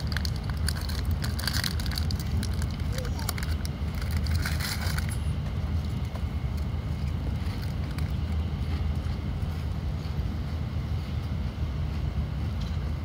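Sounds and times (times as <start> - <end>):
foil wrapper crinkling: 0.0 - 5.3, 7.3 - 8.3
train rumble: 0.0 - 13.0.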